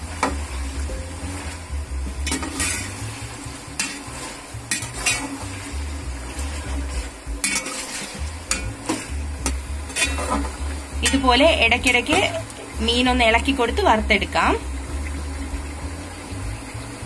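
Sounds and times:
fish sizzling in oil: 0.0 - 17.0
metal spoon scraping pan: 2.2 - 5.8, 6.4 - 12.4.

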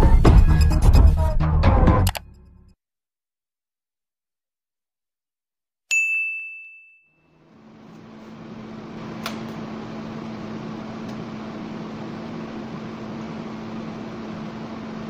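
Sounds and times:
sharp click: 2.0 - 2.2
bright bell ding: 5.9 - 7.4.

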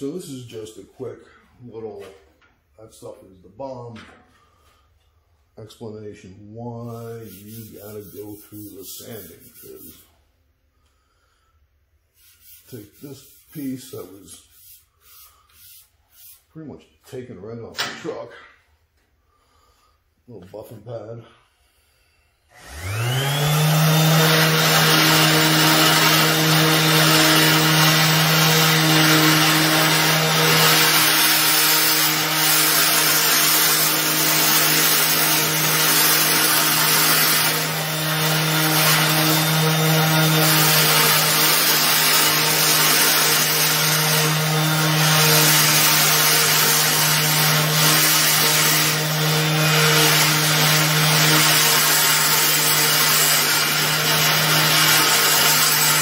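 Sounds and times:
orbital sander whining: 22.5 - 56.0.

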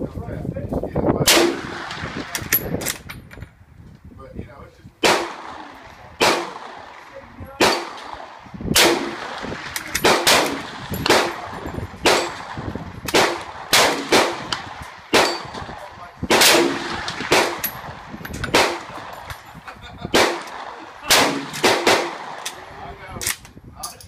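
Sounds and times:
rifle shots with echo: 1.2 - 3.1, 5.0 - 19.4, 20.0 - 22.9.

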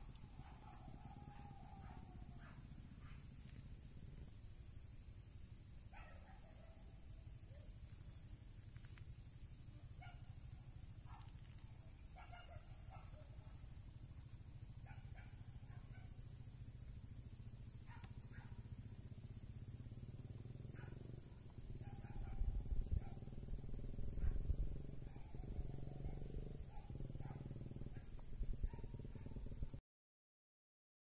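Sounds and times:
wind rumbling on microphone: 21.8 - 26.5.

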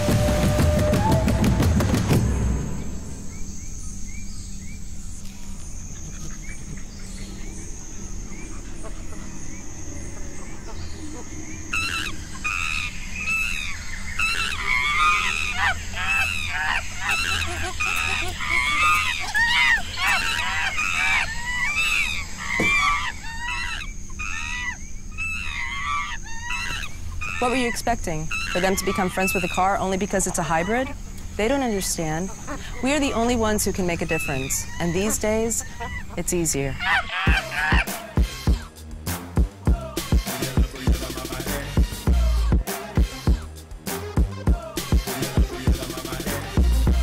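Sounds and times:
high-pitched insect drone: 2.4 - 36.1
bird chirps: 2.6 - 37.9
apes hooting and screeching: 7.3 - 38.7
loud music: 37.3 - 47.0.

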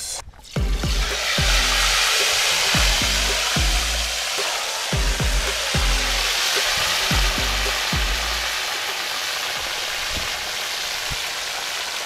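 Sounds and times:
fish deep-frying in fat: 0.0 - 12.0
electronic music with deep bass: 0.6 - 8.5.

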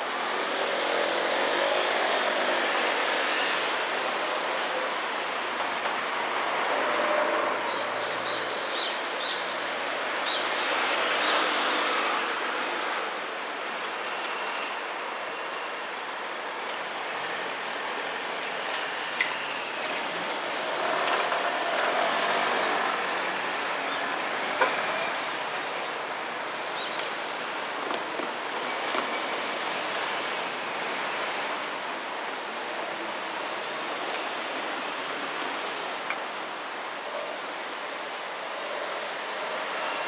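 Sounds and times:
cars passing: 17.0 - 37.3.

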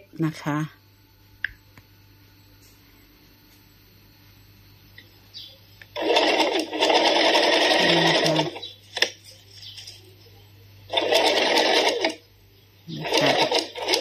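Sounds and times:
sewing machine stitching: 6.0 - 9.1, 10.9 - 12.2, 13.0 - 14.0.

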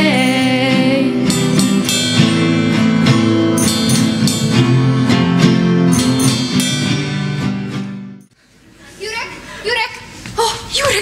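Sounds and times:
acoustic guitars strumming: 0.0 - 8.3
electric guitar: 0.0 - 8.3
drum kit steady beat: 1.2 - 7.6.

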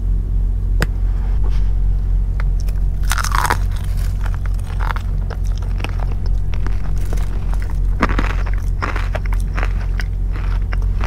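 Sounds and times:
low hum: 0.0 - 11.0
crunchy chewing of fried chicken: 2.5 - 11.0.

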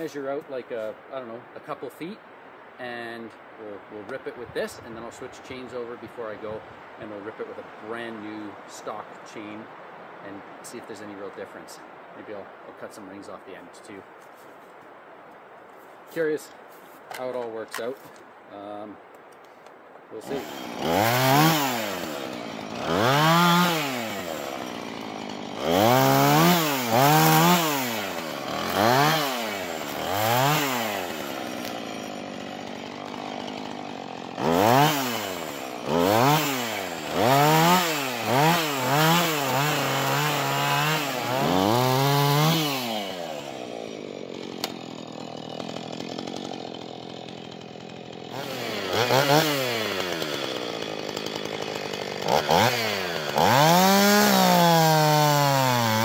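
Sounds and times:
chainsaw idling: 20.2 - 56.0
chainsaw revving: 20.2 - 56.0.

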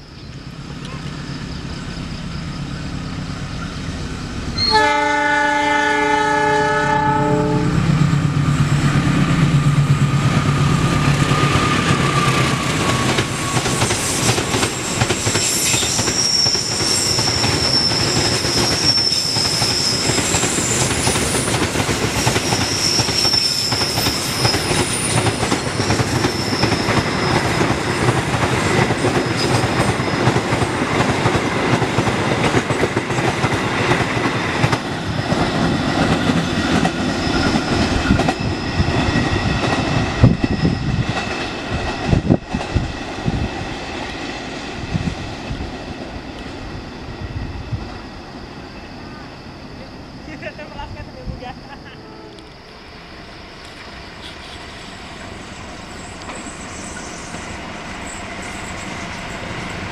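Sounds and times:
high wheel squeals: 0.0 - 4.9, 11.2 - 30.6, 37.0 - 41.2, 54.2 - 59.5
train wheels clickety-clack on rails: 3.5 - 46.6, 53.6 - 59.9
train horn: 4.6 - 7.9.

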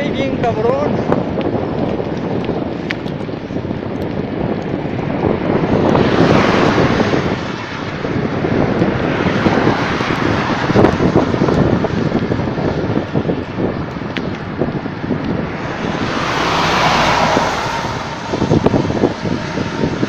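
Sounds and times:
bicycle road noise: 0.0 - 20.0
rushing wind: 0.0 - 20.0.

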